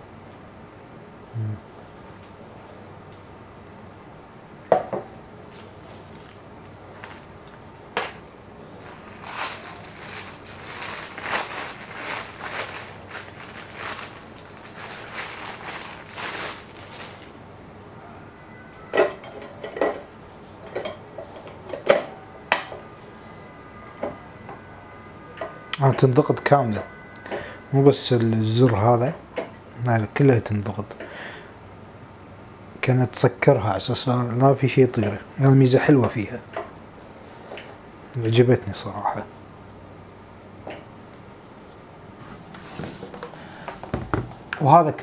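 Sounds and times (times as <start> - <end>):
plastic wrapping crinkling: 5.5 - 17.4.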